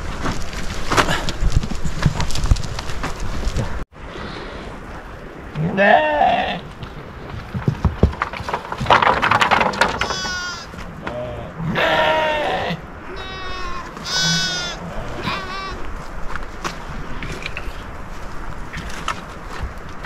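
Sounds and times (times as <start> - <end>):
sharp knocks and clatter: 7.3 - 10.5
sheep bleating: 10.1 - 10.7, 11.6 - 15.9.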